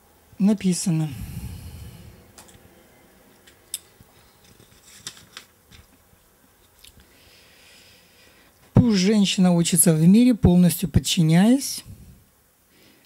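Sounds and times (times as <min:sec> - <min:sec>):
book pages turning: 0:04.4 - 0:06.0
paper rustles and clicks: 0:04.4 - 0:06.0.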